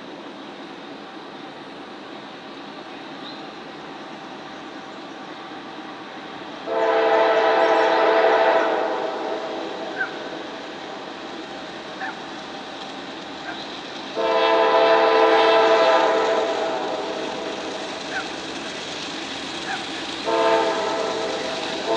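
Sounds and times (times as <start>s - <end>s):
train rumbling: 0.0s - 21.9s
train air horn blasts: 6.6s - 10.1s, 14.2s - 17.7s, 20.2s - 21.9s.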